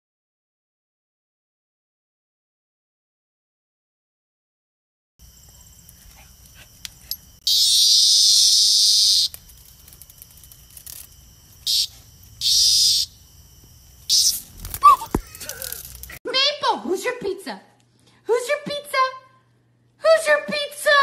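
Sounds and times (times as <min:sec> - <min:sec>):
insect buzzing: 0:05.2 - 0:16.2.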